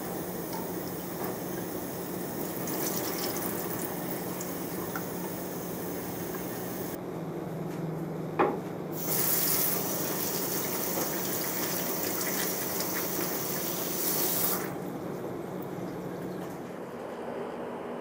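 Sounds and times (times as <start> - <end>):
tap water splashing into sink: 2.5 - 5.3, 9.1 - 14.7.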